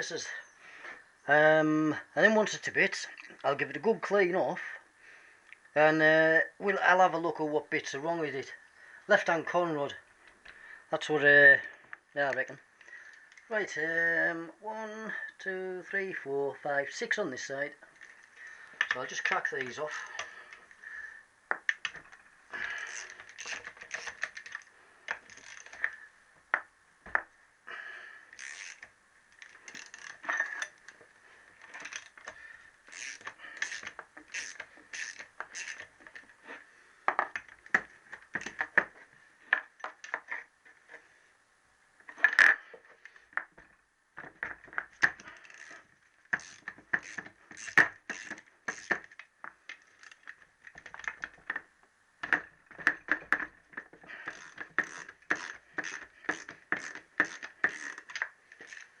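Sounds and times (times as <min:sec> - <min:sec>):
socket ratchet clicking: 0:32.9 - 0:35.9.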